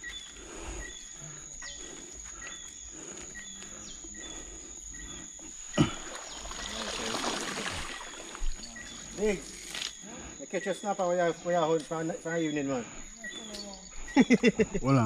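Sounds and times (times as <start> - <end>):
night insects trilling: 0.0 - 15.0.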